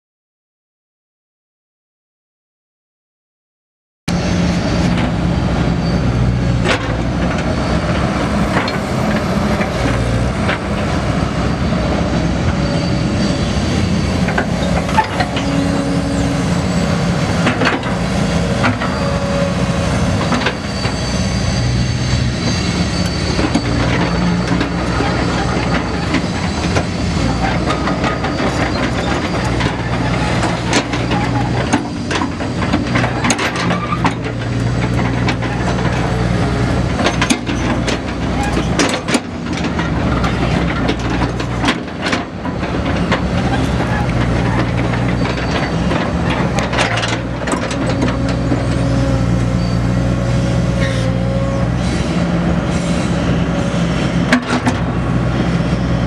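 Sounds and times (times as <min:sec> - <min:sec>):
excavator diesel engine running: 0:04.1 - 0:56.0
machine clanks and knocks: 0:36.9 - 0:48.8.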